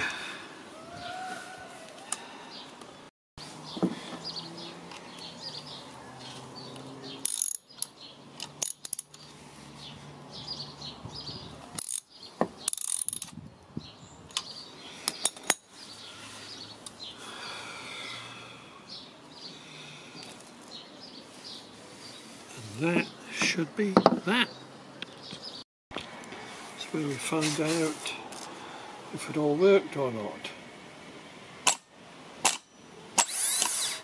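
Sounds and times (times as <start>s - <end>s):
ratchet wrench clicking: 7.2s - 9.2s, 11.8s - 12.1s, 12.7s - 13.3s.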